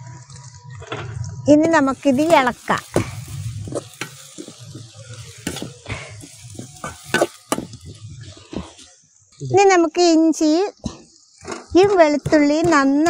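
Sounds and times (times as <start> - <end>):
metal spatula scraping pan: 1.8 - 7.8
hot oil sizzling: 1.8 - 8.4.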